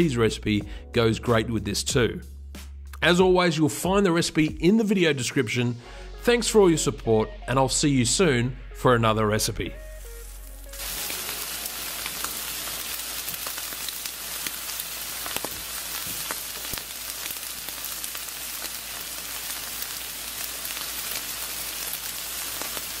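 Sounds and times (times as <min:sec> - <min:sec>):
steak sizzling on a grill: 0:09.8 - 0:23.0
fat crackles and pops: 0:10.2 - 0:23.0.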